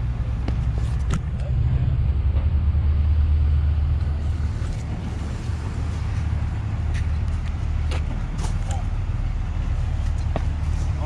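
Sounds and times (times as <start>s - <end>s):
road rumble: 0.0s - 11.0s
vehicle engine drone: 0.0s - 11.0s.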